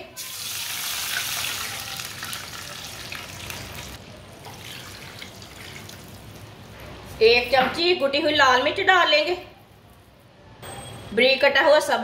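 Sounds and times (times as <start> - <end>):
water sizzling in hot oil: 0.2 - 4.0.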